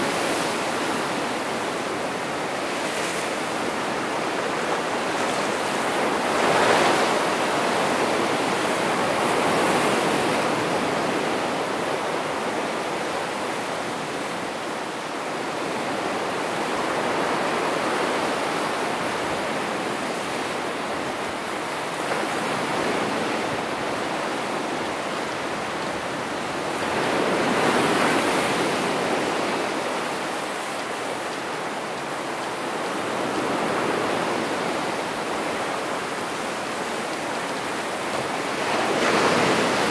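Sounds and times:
surf breaking on rocky shore: 32.5s - 39.9s.

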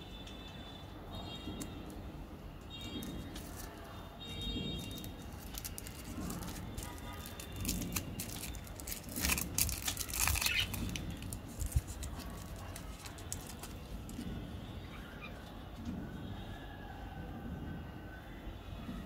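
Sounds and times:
candy wrapper crinkling: 3.0s - 3.9s, 4.8s - 14.2s.

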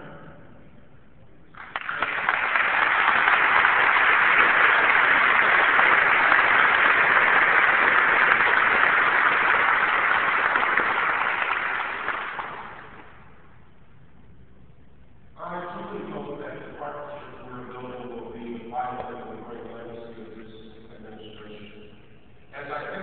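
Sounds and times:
audience applauding: 1.6s - 13.1s.

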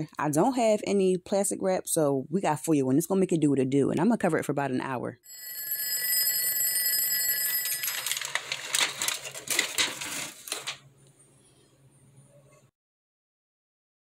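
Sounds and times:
alarm clock bell ringing: 5.2s - 8.8s.

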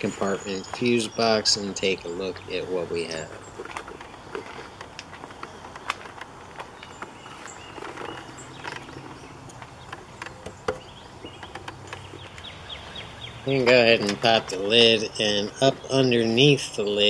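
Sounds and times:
light clicks and rustles: 3.2s - 12.6s.

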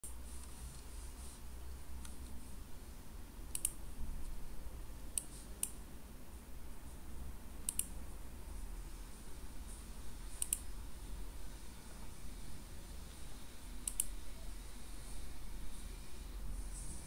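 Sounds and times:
low steady hum: 0.0s - 17.0s
computer mouse clicking: 2.0s - 2.4s, 3.5s - 4.4s, 7.6s - 8.0s, 10.4s - 10.7s, 13.8s - 14.2s.

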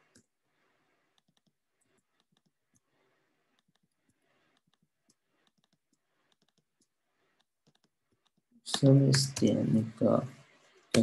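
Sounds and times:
typing on computer keyboard: 1.2s - 2.6s, 3.6s - 9.5s.

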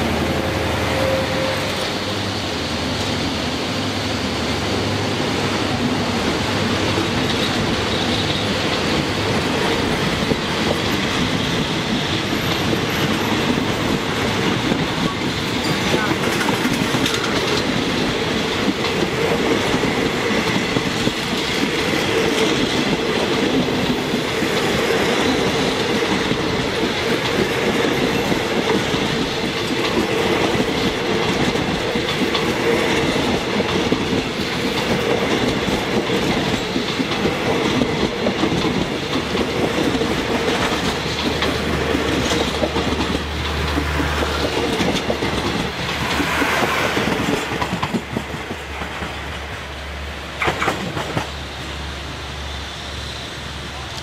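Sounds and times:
train wheels rumbling on rails: 0.0s - 54.0s
clickety-clack over rail joints: 5.1s - 51.7s.

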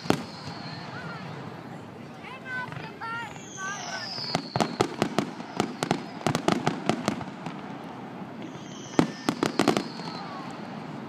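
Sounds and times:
falling firework whistle: 0.0s - 1.4s, 3.1s - 7.6s, 8.3s - 11.0s
firework bang: 0.0s - 1.6s, 2.5s - 10.6s
fireworks crackling bursts: 0.0s - 11.0s.

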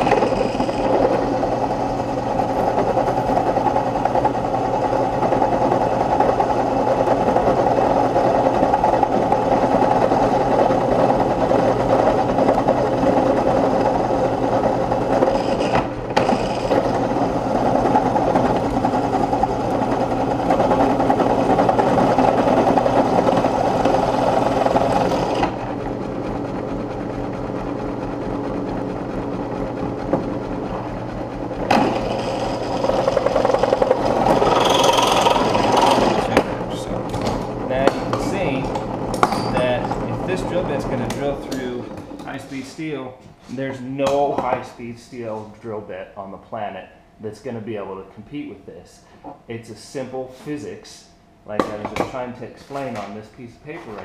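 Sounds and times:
drill bit grinding into steel: 0.0s - 25.6s, 31.6s - 42.0s
drill press motor running: 0.0s - 42.6s.

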